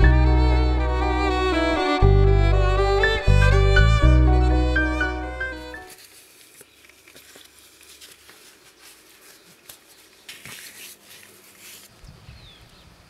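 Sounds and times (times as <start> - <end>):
faint rustling: 5.8 - 12.0.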